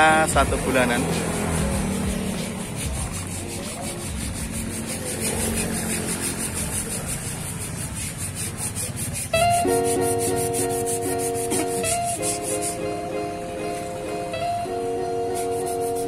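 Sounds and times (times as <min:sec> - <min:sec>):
file rasping on saw teeth: 0:00.0 - 0:12.8.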